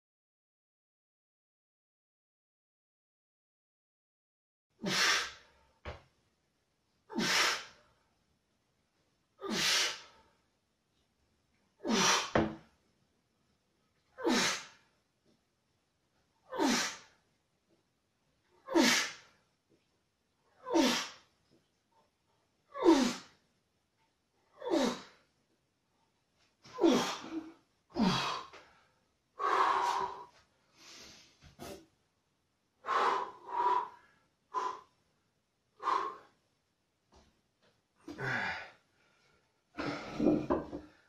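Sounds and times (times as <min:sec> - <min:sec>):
man breathing out hard: 0:29.4 - 0:31.2, 0:32.8 - 0:34.9, 0:38.1 - 0:38.8.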